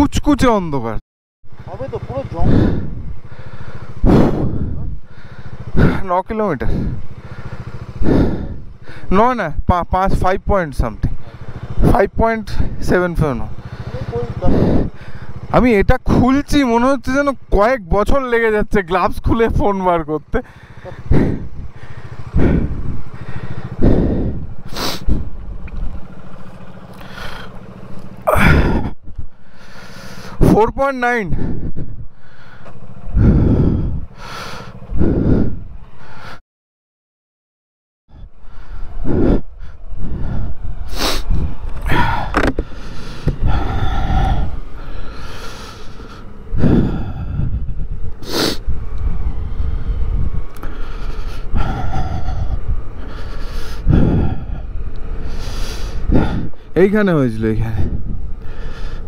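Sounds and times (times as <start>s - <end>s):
motorcycle engine idling: 1.5s - 36.4s, 38.1s - 59.0s
wind buffeting microphone: 1.7s - 9.0s, 9.6s - 16.5s, 20.3s - 26.7s, 30.4s - 35.9s, 38.1s - 59.0s.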